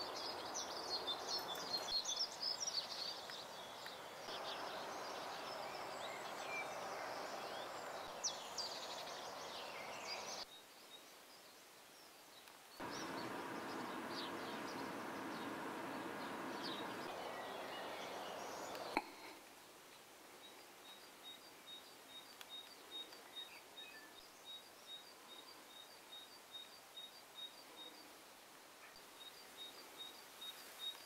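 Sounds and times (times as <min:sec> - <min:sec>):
small birds chirping: 0:00.0 - 0:19.4, 0:20.3 - 0:28.2, 0:28.8 - 0:31.0
steady background noise: 0:12.8 - 0:19.4.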